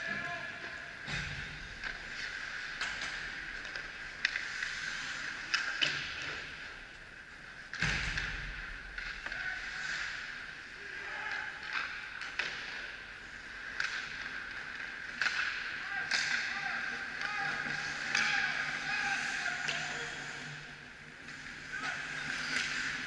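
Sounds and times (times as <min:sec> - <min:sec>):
hockey sticks and puck clacking: 0:00.0 - 0:23.0
skate blades hissing on ice: 0:04.4 - 0:05.5.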